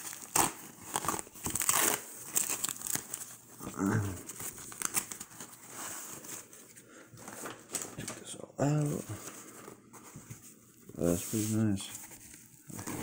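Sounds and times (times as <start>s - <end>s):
plastic packing crinkling and tearing: 0.0s - 8.2s, 11.2s - 13.0s.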